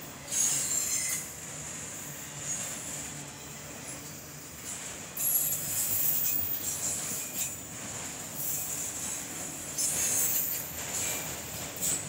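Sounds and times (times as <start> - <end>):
freight train rumble and rattle: 0.0 - 12.0.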